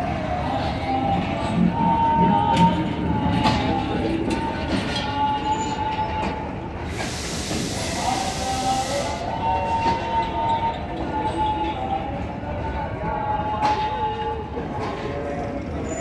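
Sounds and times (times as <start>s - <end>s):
train wheels squealing: 4.9s - 11.8s, 15.5s - 16.0s
hiss: 6.8s - 9.3s.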